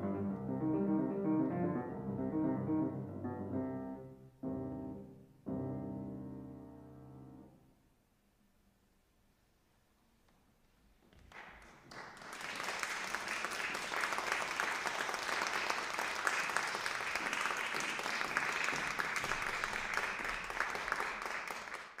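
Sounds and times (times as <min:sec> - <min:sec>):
audience applauding: 0:11.2 - 0:22.0.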